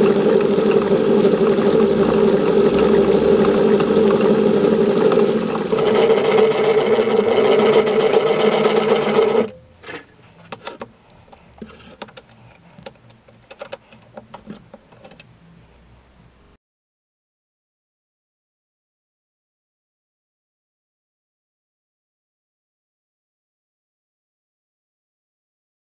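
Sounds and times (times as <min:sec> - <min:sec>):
metal lathe humming: 0:00.0 - 0:09.6.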